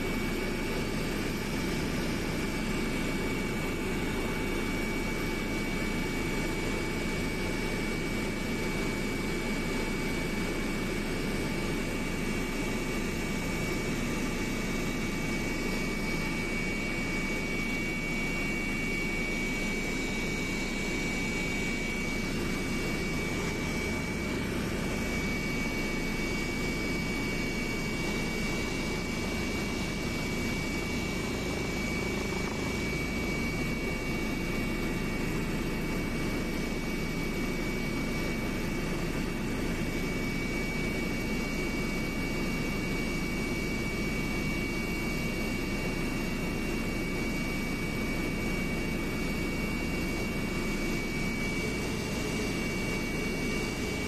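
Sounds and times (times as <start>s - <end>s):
aircraft cabin engine noise: 0.0s - 54.0s.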